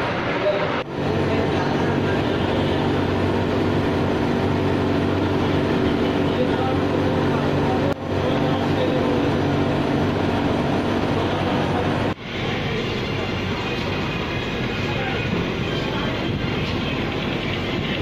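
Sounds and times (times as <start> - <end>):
laundry machinery noise: 0.0 - 18.0
ironing machine humming: 0.8 - 12.2.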